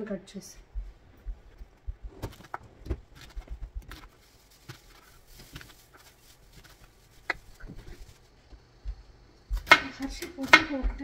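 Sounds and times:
heavy thumps: 0.7s - 4.1s.

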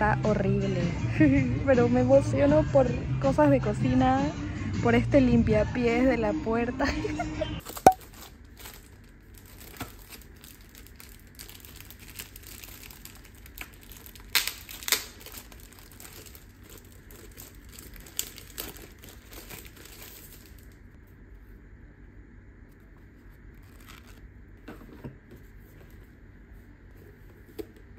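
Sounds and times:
plastic wrapper crinkling: 7.6s - 20.9s, 23.6s - 24.2s.

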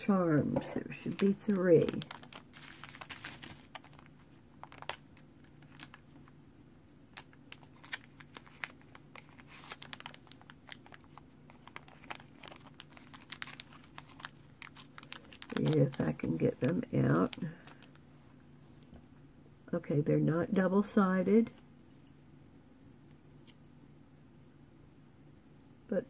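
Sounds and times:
plastic bag crinkling: 0.6s - 6.5s, 7.1s - 18.1s.

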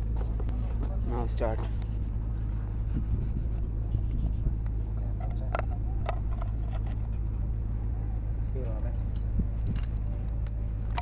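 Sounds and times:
steady low rumble: 0.0s - 11.0s
scrapes and clicks of handled cables: 5.2s - 7.2s.

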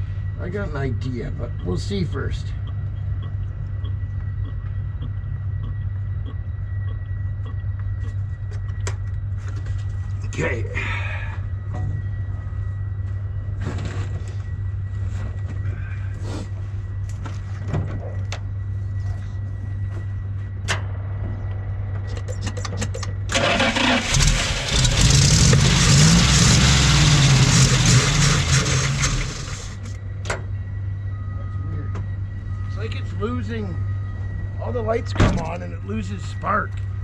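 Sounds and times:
pickup engine cranking and running: 22.5s - 30.0s.

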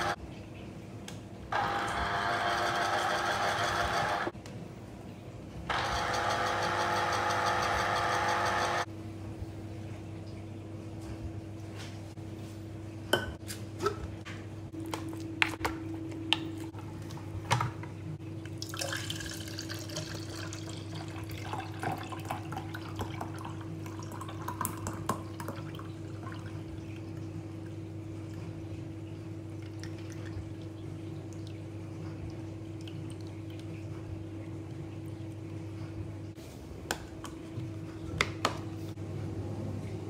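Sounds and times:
juice pouring into beaker: 18.6s - 23.3s.

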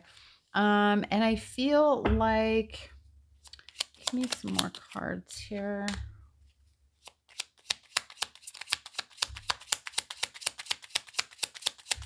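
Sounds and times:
cards being shuffled: 3.4s - 5.0s, 7.0s - 12.0s.

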